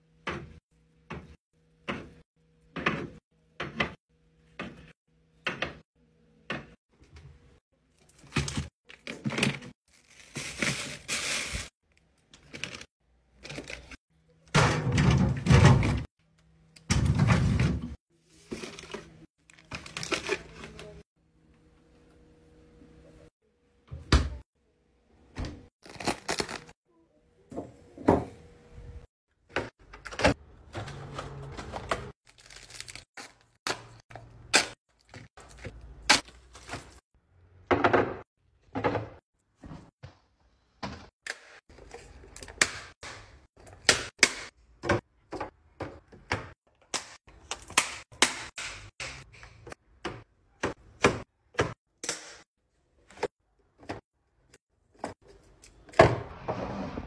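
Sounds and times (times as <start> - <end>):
packaging rustling: 32.2 - 33.6.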